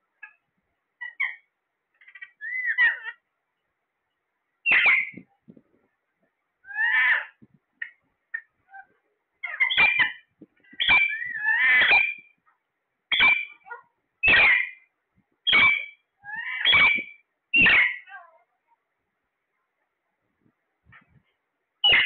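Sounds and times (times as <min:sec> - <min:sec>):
parakeets squawking: 0:01.0 - 0:03.2, 0:04.7 - 0:05.2, 0:06.7 - 0:07.4, 0:08.4 - 0:12.3, 0:13.1 - 0:14.9, 0:15.5 - 0:18.4.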